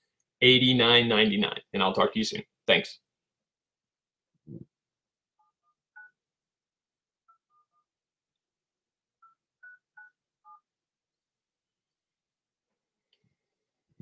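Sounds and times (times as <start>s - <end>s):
faint touch-tone keypad beeps: 5.4s - 6.2s, 9.2s - 10.7s.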